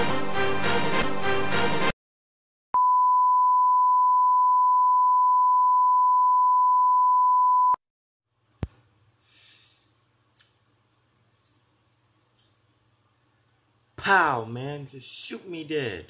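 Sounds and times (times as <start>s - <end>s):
music: 0.0s - 1.9s.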